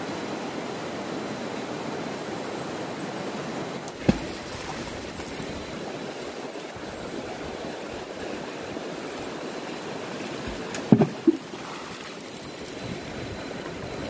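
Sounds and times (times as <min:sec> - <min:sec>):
river flowing over stones: 0:00.0 - 0:14.0
thump: 0:10.9 - 0:11.4.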